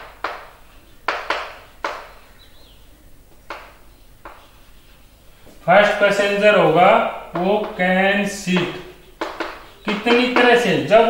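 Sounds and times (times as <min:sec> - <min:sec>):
chalk writing on chalkboard: 0:04.2 - 0:05.0.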